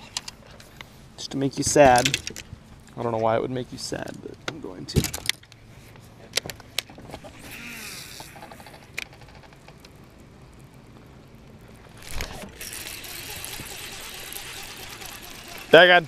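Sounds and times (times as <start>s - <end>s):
fishing reel spool whir: 7.2s - 9.6s, 11.6s - 16.0s
fishing reel ticking: 7.3s - 9.4s, 11.9s - 16.0s
gear knocks and clicks: 11.8s - 16.0s.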